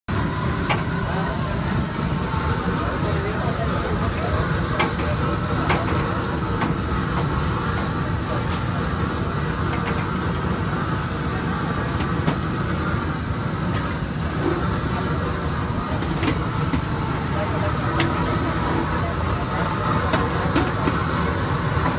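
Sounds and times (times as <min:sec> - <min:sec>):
street noise rumble: 0:00.1 - 0:21.9.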